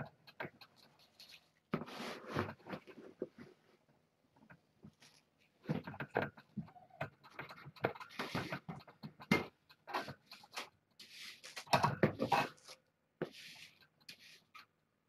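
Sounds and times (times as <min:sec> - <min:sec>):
scratching and rustling: 0:00.0 - 0:14.8
hissing scrape: 0:11.0 - 0:14.5.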